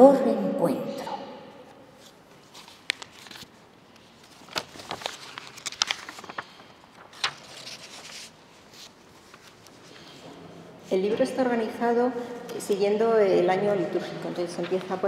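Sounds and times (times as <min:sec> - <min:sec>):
paper rustling: 0:02.0 - 0:10.4, 0:14.4 - 0:15.0.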